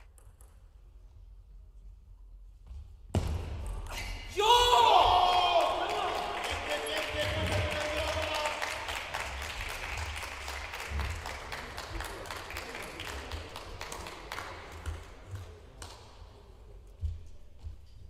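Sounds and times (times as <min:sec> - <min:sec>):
small crowd applauding: 0:04.4 - 0:16.0.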